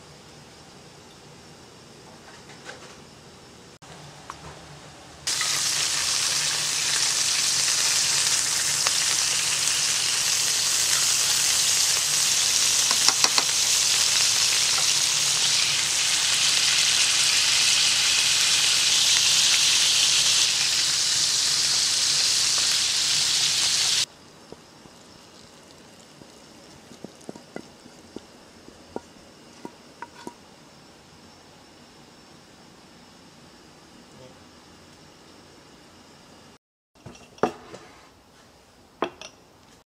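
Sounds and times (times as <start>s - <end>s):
squid sizzling in hot oil: 5.3s - 28.2s.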